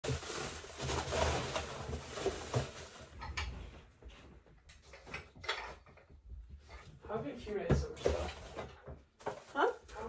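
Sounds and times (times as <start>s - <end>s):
plastic bag rustling: 0.0s - 3.4s, 8.0s - 10.0s.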